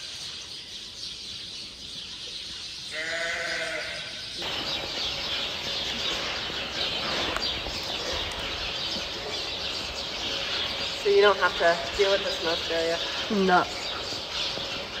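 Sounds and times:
high hiss of outdoor background: 0:00.0 - 0:15.0
sheep bleating: 0:02.9 - 0:04.2.

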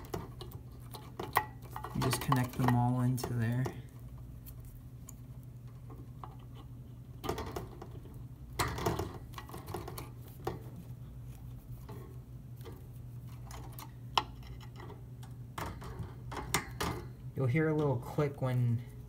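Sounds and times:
cable bundle rustling: 0:00.0 - 0:06.7.

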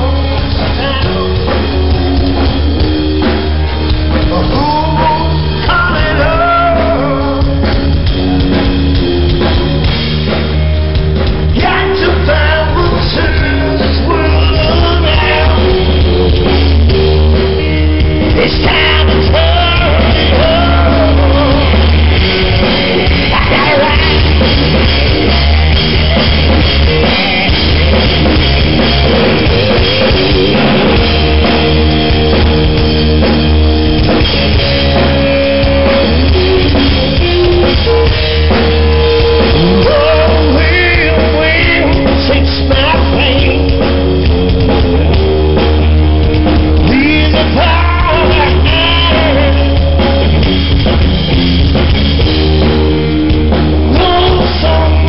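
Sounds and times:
person singing: 0:00.0 - 0:09.9, 0:11.6 - 0:22.0, 0:23.0 - 0:24.8, 0:34.9 - 0:45.2, 0:46.8 - 0:50.3, 0:53.9 - 0:55.0
live rock band playing: 0:00.0 - 0:55.0
low bass: 0:00.0 - 0:55.0.

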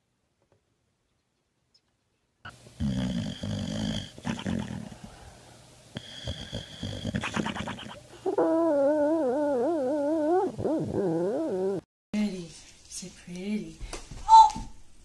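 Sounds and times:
dog growling and snoring: 0:02.5 - 0:05.2, 0:06.0 - 0:11.8
dog whining: 0:06.0 - 0:11.9
dog howling: 0:08.2 - 0:11.8.

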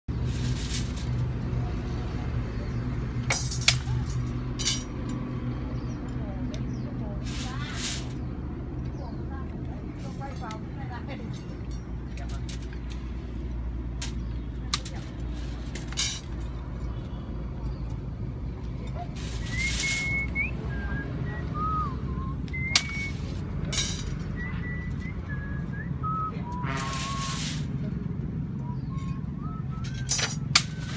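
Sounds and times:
low engine hum: 0:00.1 - 0:30.9
metallic clinks of rebar: 0:03.2 - 0:05.4, 0:28.9 - 0:30.9
person whistling: 0:19.4 - 0:23.2, 0:24.4 - 0:27.4, 0:28.6 - 0:30.1.

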